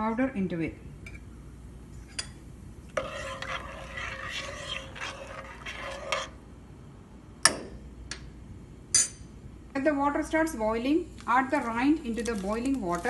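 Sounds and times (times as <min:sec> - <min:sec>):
metal spoon scraping a pot: 0:02.9 - 0:06.4.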